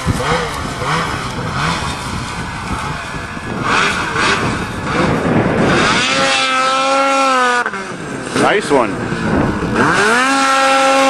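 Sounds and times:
snowmobile engine revving: 0:00.0 - 0:11.0.

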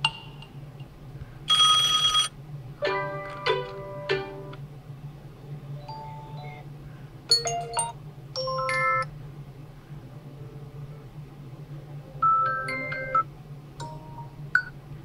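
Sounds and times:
phone bell ringtone: 0:01.5 - 0:02.3.

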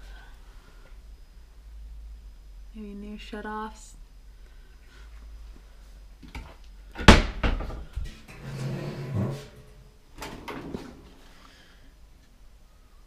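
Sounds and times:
cabinet door banging shut: 0:07.0 - 0:07.9.

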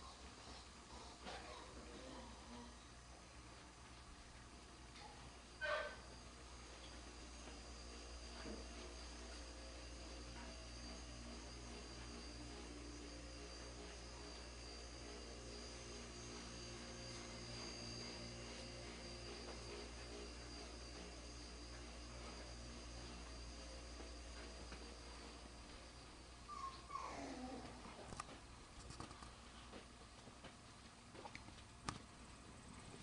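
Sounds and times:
low electrical hum: 0:00.0 - 0:33.0.

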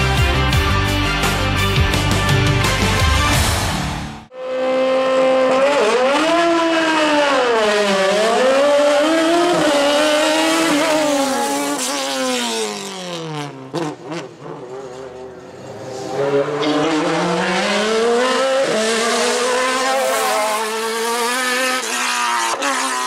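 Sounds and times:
rock music: 0:00.0 - 0:04.3
race car engine revving: 0:04.3 - 0:23.0.

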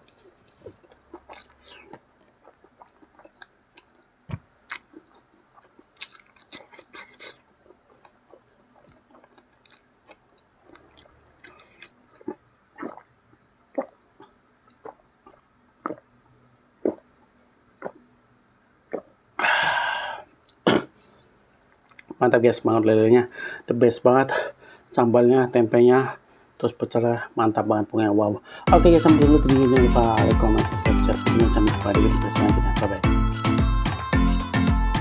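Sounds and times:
person chewing food: 0:00.0 - 0:16.0.

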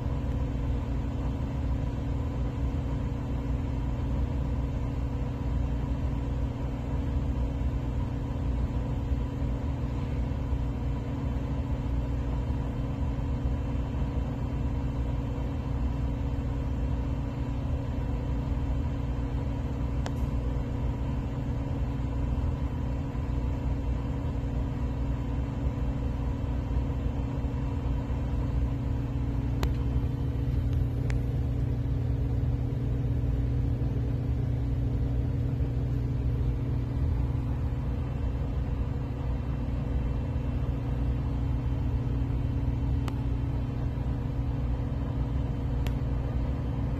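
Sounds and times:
low rumbling hum: 0:00.0 - 0:46.9.

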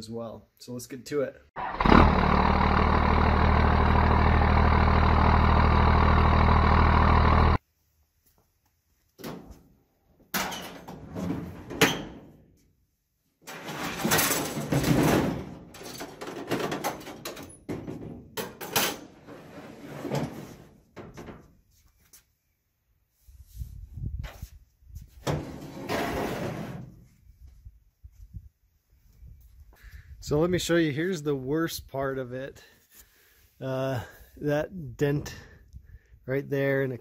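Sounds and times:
loud low drone: 0:01.8 - 0:07.6
steel tailgate clanking and scraping: 0:13.5 - 0:21.2, 0:25.2 - 0:26.9.

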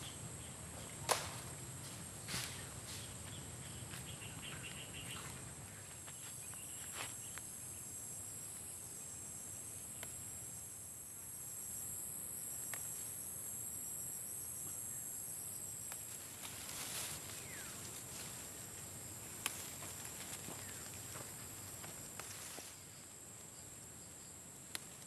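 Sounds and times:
high-pitched insect chorus: 0:00.0 - 0:25.0
faint sharp snaps: 0:12.7 - 0:12.9.

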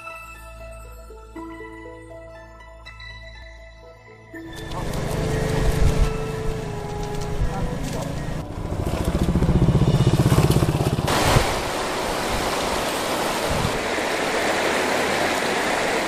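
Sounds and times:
pulsing engine rumble: 0:04.5 - 0:12.1
river rushing over stones: 0:11.0 - 0:16.0.

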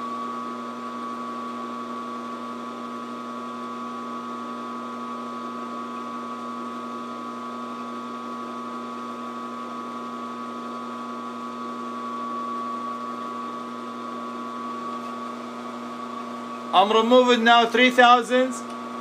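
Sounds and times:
milling machine running: 0:00.0 - 0:19.0.

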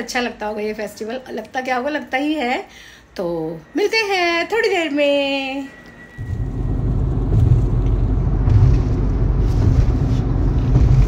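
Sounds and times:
car road and engine rumble: 0:06.2 - 0:11.0.

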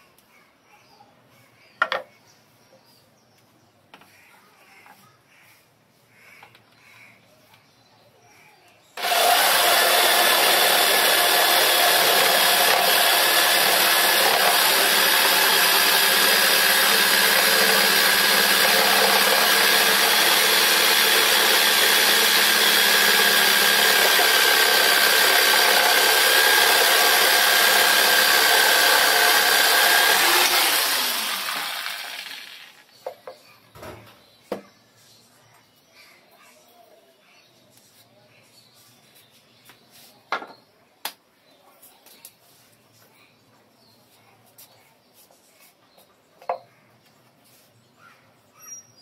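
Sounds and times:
jigsaw sawing wood: 0:09.0 - 0:32.9.

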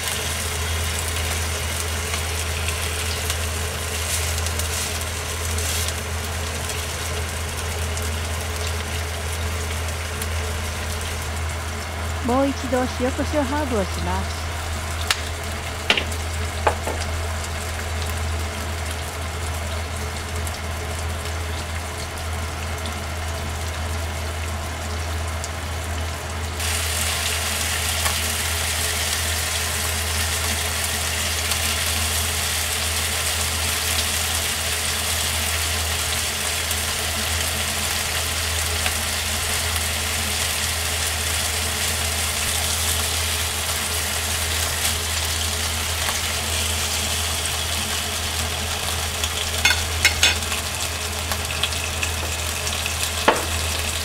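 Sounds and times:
steady low hum: 0:00.0 - 0:26.1
meat sizzling in a frying pan: 0:00.0 - 0:54.0.

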